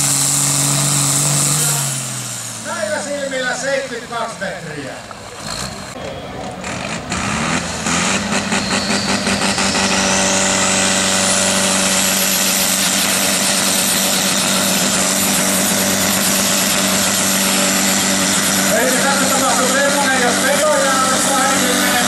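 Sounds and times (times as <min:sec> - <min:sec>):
tractor diesel engine revving: 0:00.0 - 0:22.0
high whine: 0:05.9 - 0:22.0.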